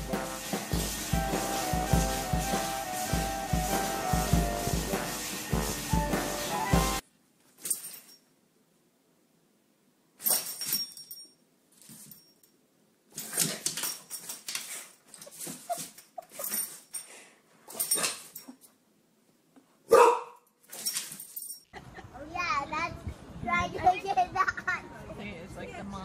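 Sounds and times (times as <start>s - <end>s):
background music: 0.0s - 7.0s
dog barking: 19.9s - 20.4s.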